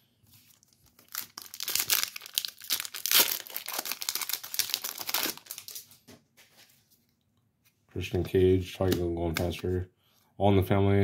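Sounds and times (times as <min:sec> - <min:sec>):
crinkly plastic packaging handled: 0:00.3 - 0:06.8.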